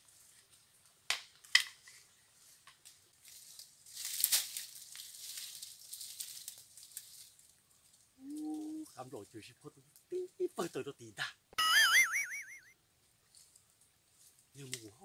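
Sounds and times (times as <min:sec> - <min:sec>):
dry brush crackling and rustling: 0:00.0 - 0:10.0, 0:13.1 - 0:15.0
footsteps through dry leaves: 0:03.2 - 0:07.9
sharp twig cracks: 0:04.0 - 0:07.1.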